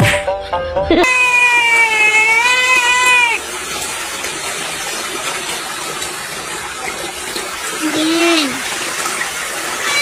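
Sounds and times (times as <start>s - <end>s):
cat meowing: 1.0s - 3.4s.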